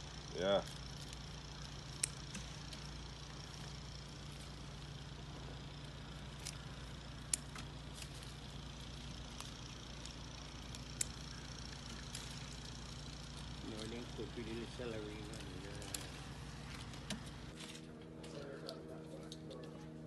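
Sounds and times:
steady low hum: 0.0s - 20.0s
calyxes snapping off stems: 0.7s - 2.9s, 6.3s - 12.7s.

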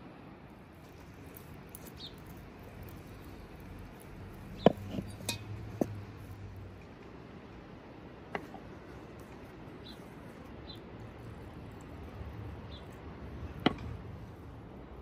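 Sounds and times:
spoon clinking against metal bowl: 4.7s - 5.6s.

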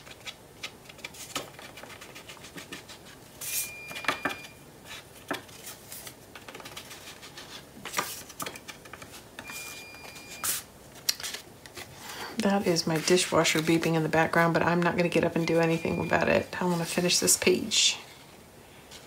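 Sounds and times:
paper strips rustling: 4.8s - 14.5s
dishwasher beeping: 15.6s - 16.4s.

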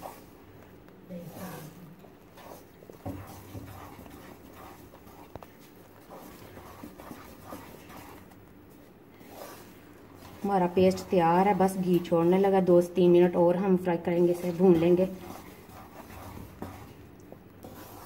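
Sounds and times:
spatula scraping paste in wok: 2.3s - 8.4s, 9.2s - 12.6s, 14.0s - 18.0s.

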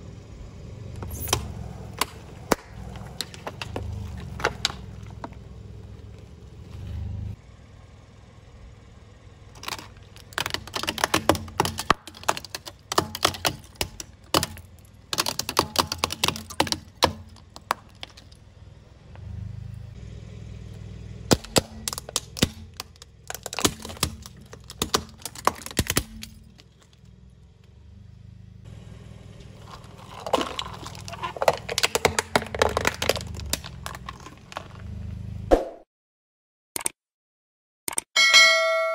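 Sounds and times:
car rumble: 0.0s - 35.5s
plastic cracking and snapping: 9.6s - 18.4s, 21.3s - 26.7s, 29.6s - 34.8s.

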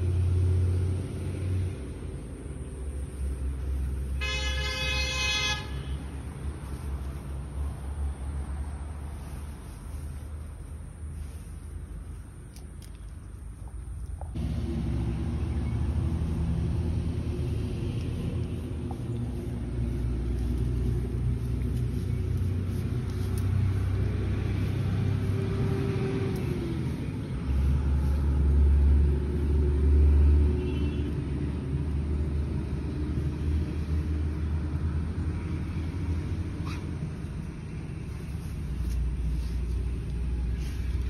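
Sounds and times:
low mechanical rumble with hum: 5.7s - 29.4s.

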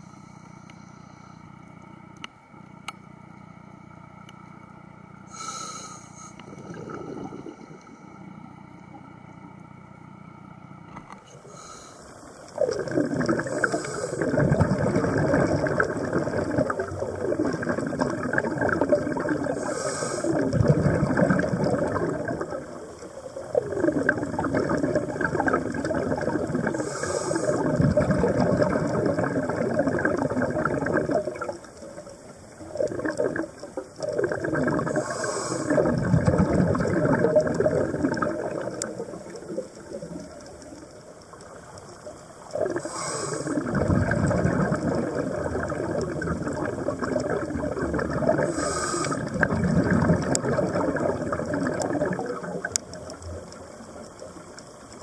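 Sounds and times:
diver exhaling bubbles underwater: 5.3s - 9.0s, 12.5s - 54.6s
regulator hissing: 19.4s - 20.5s, 26.6s - 27.7s, 34.9s - 35.9s, 42.6s - 43.7s, 48.4s - 49.4s.

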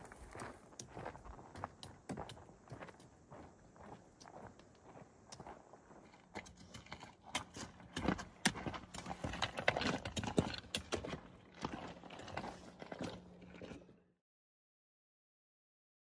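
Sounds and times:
footsteps on rocky trail: 0.0s - 13.9s
trekking poles clicking on rock: 6.1s - 13.6s.

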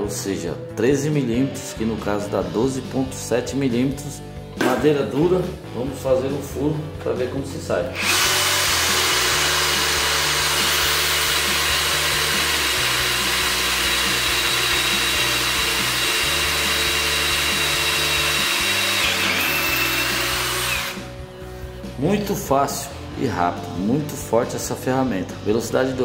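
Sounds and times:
cordless drill boring through wood: 7.9s - 21.1s.

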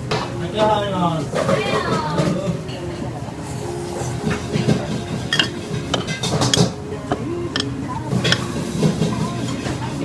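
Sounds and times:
faint background music: 0.0s - 10.0s
ceramic spoon clinking dishes: 4.6s - 8.5s.

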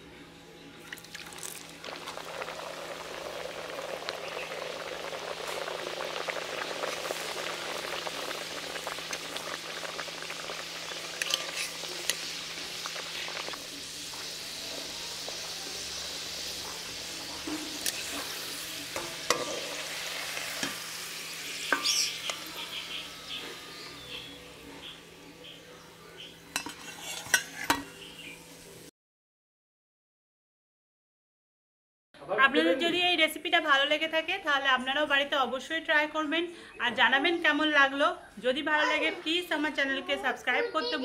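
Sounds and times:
food deep-frying in oil: 0.8s - 28.9s
metal spatula scraping a pan: 11.2s - 12.4s, 26.6s - 28.0s.

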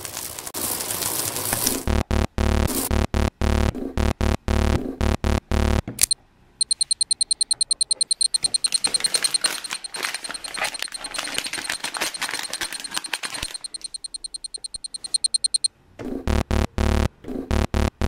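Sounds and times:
fast high electronic beeps: 1.9s - 15.7s, 16.3s - 18.0s
foil wrapper crinkling and tearing: 8.7s - 13.9s.

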